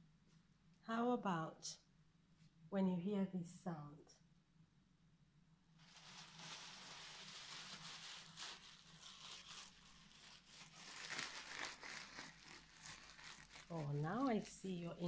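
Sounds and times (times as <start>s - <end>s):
packaging crumpled and rustled: 5.8s - 15.0s.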